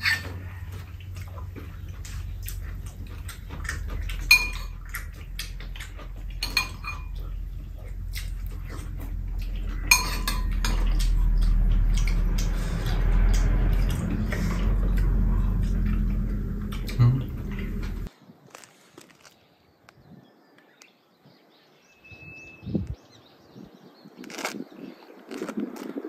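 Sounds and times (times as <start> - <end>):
low hum: 0.0 - 18.1
spoons clinking against ceramic bowls: 4.2 - 4.8, 6.4 - 7.2, 9.7 - 11.1.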